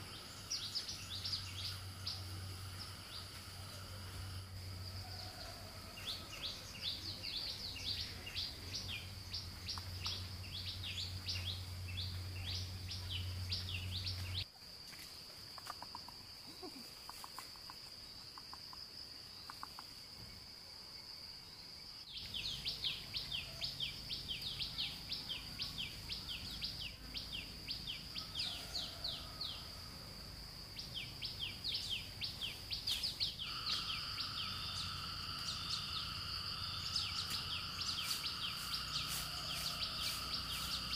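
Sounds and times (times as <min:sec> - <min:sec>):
descending chirps: 0:33.3 - 0:40.9.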